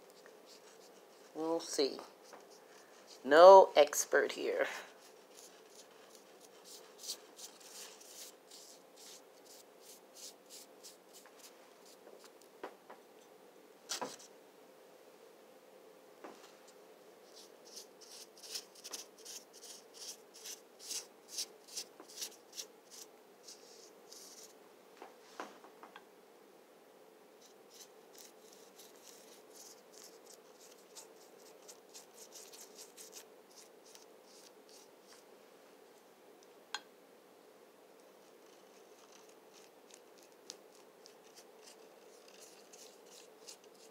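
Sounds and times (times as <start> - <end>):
paintbrush strokes: 0.0 - 3.5, 4.6 - 12.5, 16.6 - 24.6, 27.4 - 35.3, 38.2 - 43.9.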